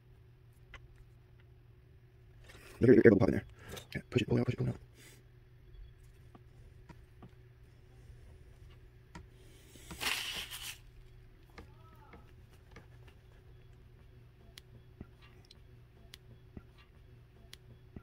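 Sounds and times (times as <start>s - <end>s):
cable clicks and squishes: 9.9s - 13.8s.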